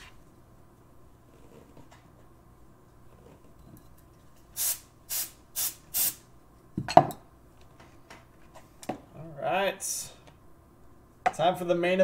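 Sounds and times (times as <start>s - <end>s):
short hissing bursts: 4.6s - 6.3s.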